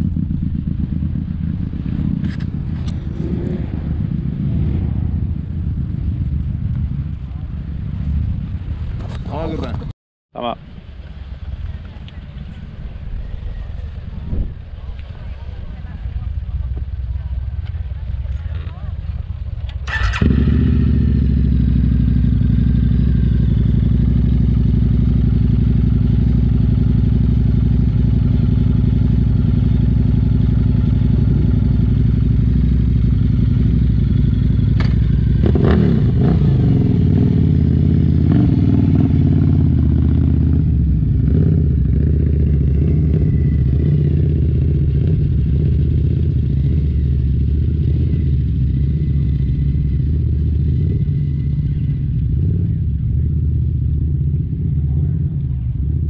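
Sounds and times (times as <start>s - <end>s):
motorcycle engine idling: 0.0s - 9.8s, 10.9s - 56.0s
motorcycle engine revving: 0.0s - 9.9s, 15.8s - 56.0s
sharp clunk: 34.8s - 35.1s.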